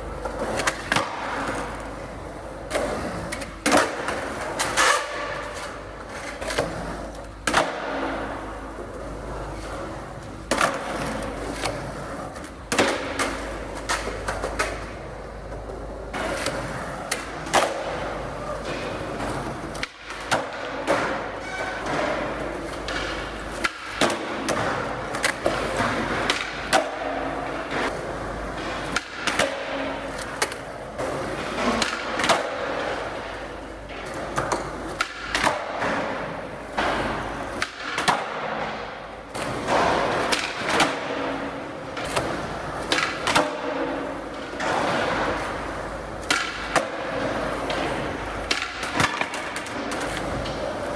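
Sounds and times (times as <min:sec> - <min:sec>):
skateboard wheels rolling on concrete: 0:00.0 - 0:50.9
skateboard landing clacks: 0:07.4 - 0:08.5, 0:10.4 - 0:50.9.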